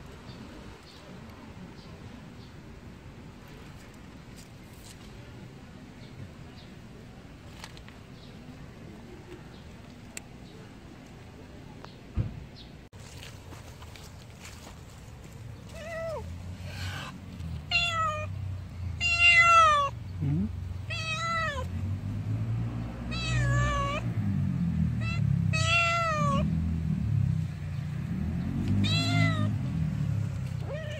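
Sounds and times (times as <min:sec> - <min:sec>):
cat meowing: 0:15.7 - 0:16.3, 0:17.0 - 0:18.3, 0:19.0 - 0:20.0, 0:20.8 - 0:21.7, 0:23.1 - 0:24.1, 0:25.0 - 0:26.5, 0:28.8 - 0:29.6, 0:30.6 - 0:30.9.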